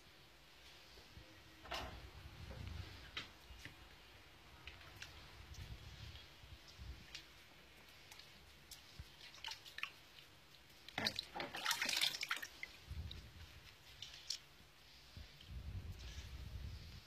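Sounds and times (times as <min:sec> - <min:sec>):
water splashing in plastic tub: 0:08.7 - 0:12.9.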